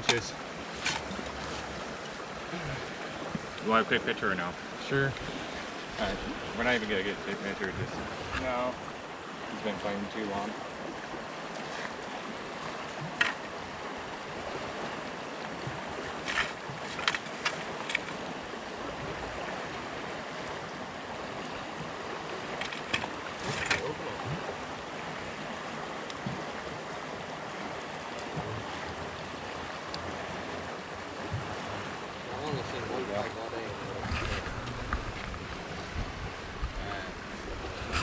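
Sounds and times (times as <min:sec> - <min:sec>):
water rushing through spillway: 0:00.0 - 0:38.0.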